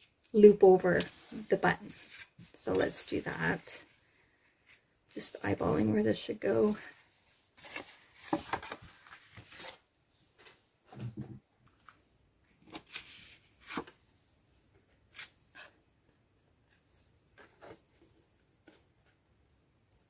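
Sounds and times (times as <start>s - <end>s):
paper rustling: 1.0s - 3.7s, 7.6s - 9.8s.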